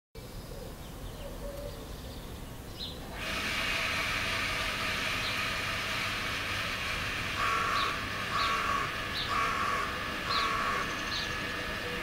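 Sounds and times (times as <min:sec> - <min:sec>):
outdoor background rumble: 0:00.2 - 0:12.0
small birds chirping: 0:00.4 - 0:03.0.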